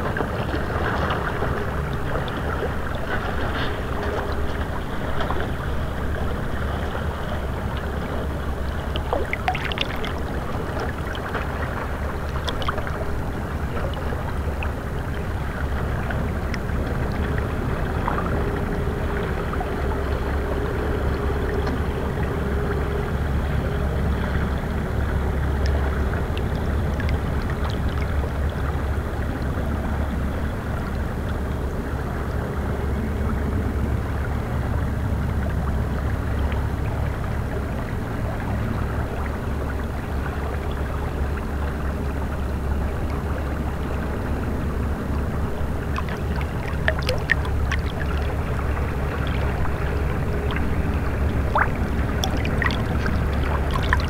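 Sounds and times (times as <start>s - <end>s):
river water lapping on rocks: 0.0s - 23.4s, 38.4s - 54.0s
low rumble: 31.8s - 54.0s.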